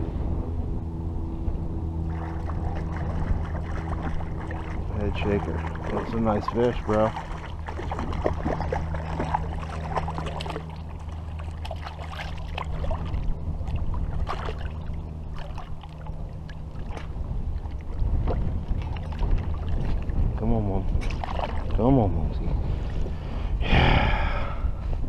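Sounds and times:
fish splashing and thrashing: 2.0 - 21.9
water sloshing: 2.0 - 23.2.

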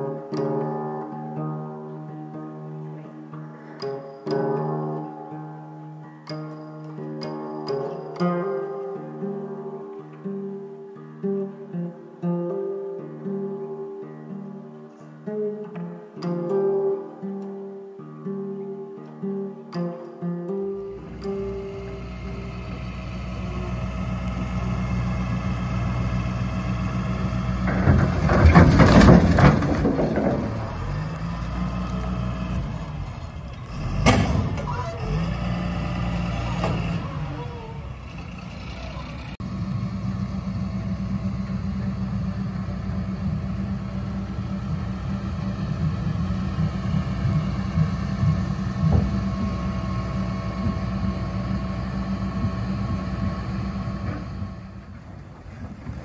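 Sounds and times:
dump truck engine running: 20.8 - 56.0
logs sliding and crashing: 27.0 - 34.7, 53.9 - 56.0.

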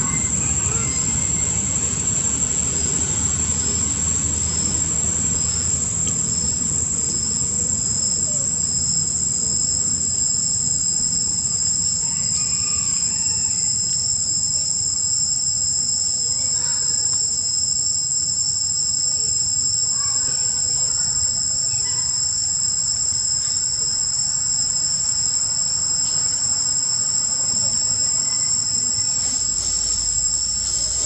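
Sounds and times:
low rumble: 0.0 - 9.9
shrill insect chorus: 0.0 - 31.0.

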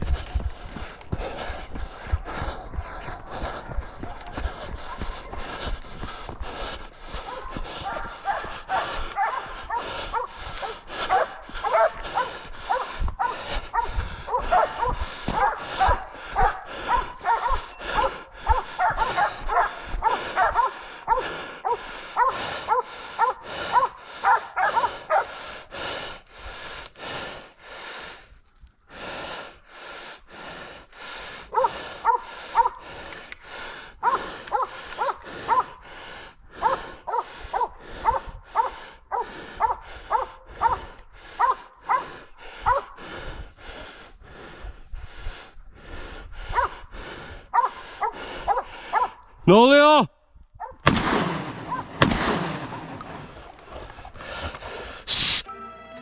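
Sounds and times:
dogs barking fast: 2.3 - 26.0, 31.3 - 43.1, 46.3 - 49.6, 50.6 - 50.8, 51.6 - 52.0.

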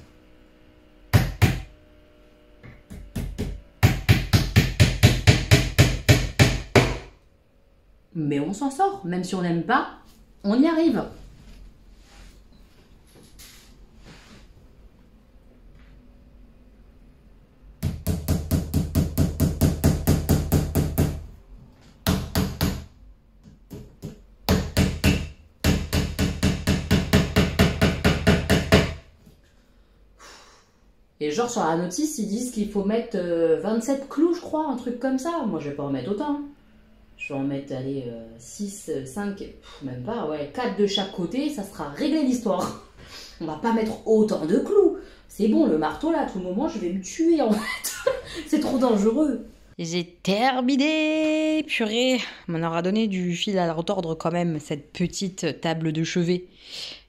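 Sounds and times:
hammer driving nails: 1.1 - 1.7, 2.7 - 7.1, 23.7 - 29.1.

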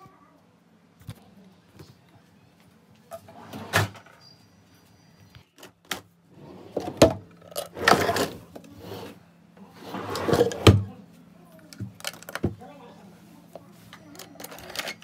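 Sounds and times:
drawer sliding and scraping: 3.2 - 4.0, 6.3 - 10.8
toys shifting inside drawer: 6.4 - 9.2, 9.8 - 10.8, 14.0 - 15.0.

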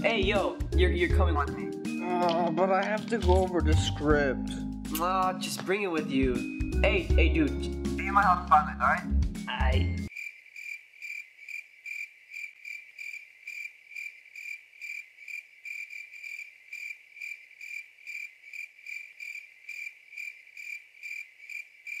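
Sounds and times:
cricket chirping: 10.1 - 22.0.

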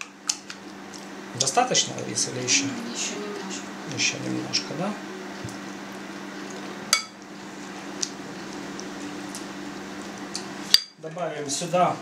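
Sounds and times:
low steady hum: 0.0 - 12.0
metal spoon clinking bowl: 7.0 - 7.2.

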